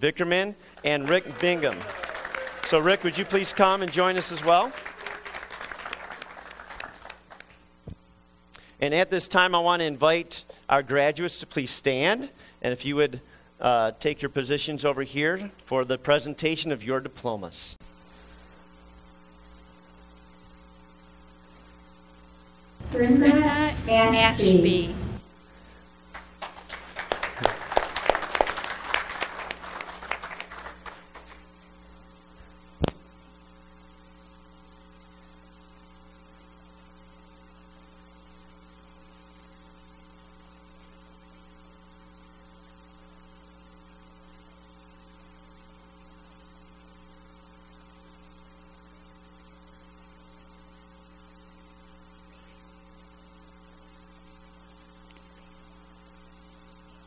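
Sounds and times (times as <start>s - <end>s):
electrical hum with fixed tones: 0.0s - 57.0s
applause: 0.7s - 7.6s, 26.1s - 31.5s.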